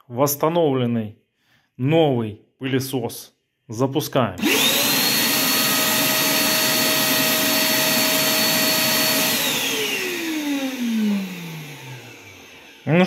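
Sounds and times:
motor spinning down: 4.4 - 13.0
vacuum motor whining: 4.4 - 13.0.

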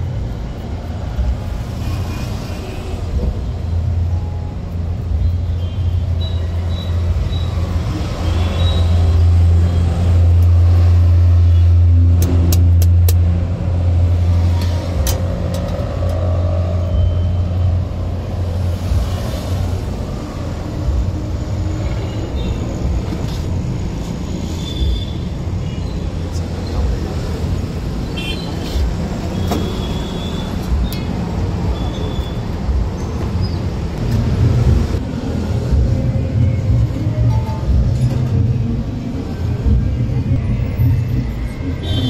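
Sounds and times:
steady low rumble: 10.2 - 25.6, 33.9 - 41.4.

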